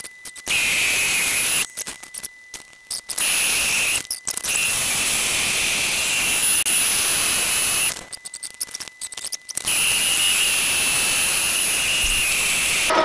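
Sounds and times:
milling machine whine: 0.0 - 13.0
scattered clicks: 7.8 - 9.8.

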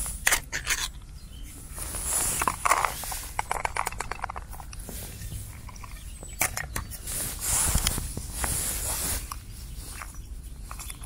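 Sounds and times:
hands and clothing rustling: 1.5 - 3.6, 4.7 - 11.0.

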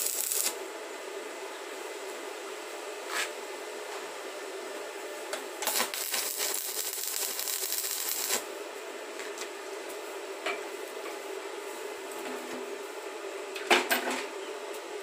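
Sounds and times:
welding arc crackling: 0.0 - 0.6, 5.6 - 8.5
steady hum: 0.0 - 13.6.

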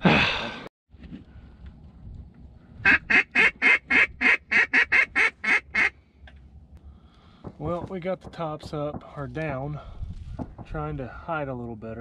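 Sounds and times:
duck call quacks: 2.8 - 6.0.

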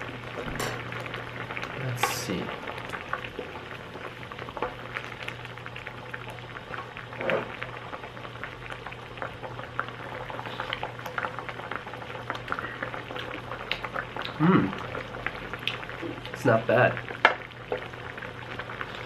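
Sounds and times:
stew bubbling in a pot: 0.0 - 19.0.

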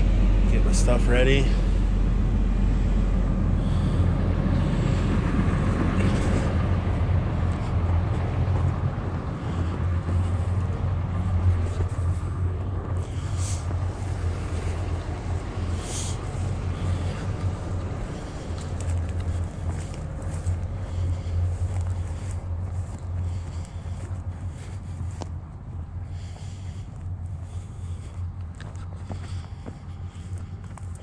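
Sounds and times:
excavator diesel engine idling: 0.0 - 31.0.

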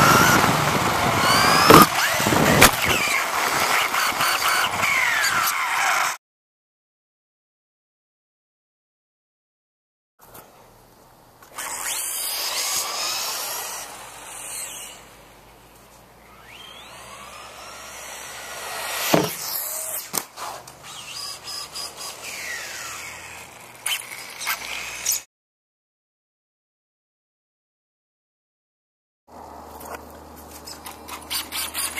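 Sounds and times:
tyre noise on pavement: 0.0 - 6.1, 18.0 - 21.3, 29.3 - 31.9
electric motor whining: 0.0 - 6.2, 11.5 - 25.3
toy truck landing thump: 1.5 - 3.1, 18.1 - 20.4.

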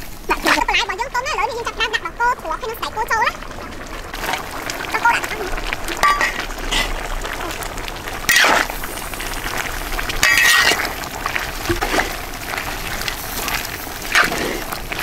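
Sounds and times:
curry bubbling in a pot: 0.0 - 15.0
metal ladle scraping a pot: 6.0 - 7.1, 10.2 - 11.0, 14.1 - 14.8.

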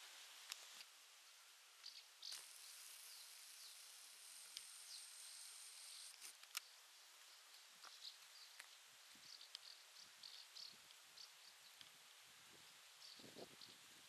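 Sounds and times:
soft hiss: 0.0 - 14.0
high insect buzz: 1.8 - 6.5
small high chirps: 1.8 - 12.0
sharp clicks: 6.1 - 6.7.

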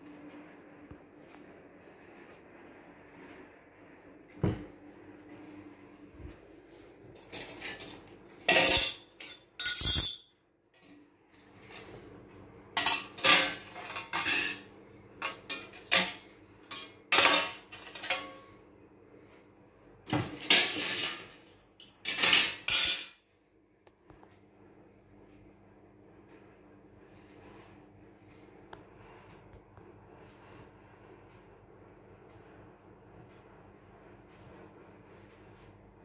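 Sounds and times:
faint low hum: 0.0 - 36.0
sheet metal clattering and scraping: 7.2 - 10.2, 12.8 - 18.4, 20.2 - 23.1.

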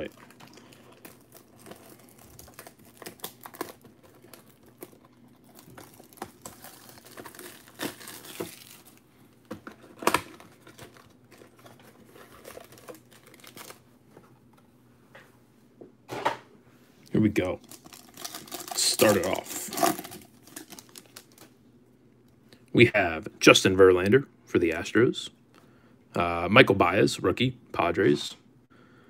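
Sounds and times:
plastic shrink-wrap crinkling and tearing: 0.0 - 9.1, 9.7 - 13.8, 17.4 - 21.6.

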